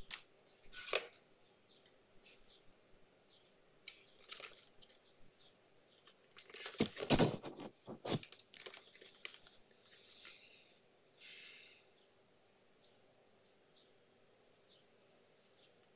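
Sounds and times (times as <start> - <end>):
cardboard box scrapes and knocks: 6.8 - 8.2.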